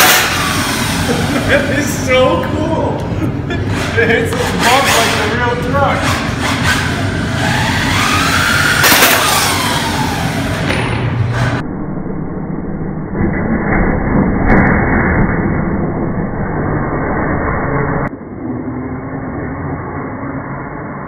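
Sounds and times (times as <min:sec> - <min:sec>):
toy truck motor and tyres: 0:06.0 - 0:10.7.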